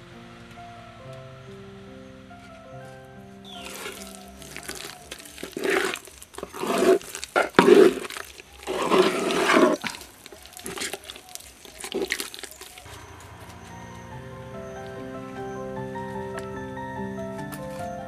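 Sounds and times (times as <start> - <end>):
hand squeezing sticky batter: 3.5 - 12.9.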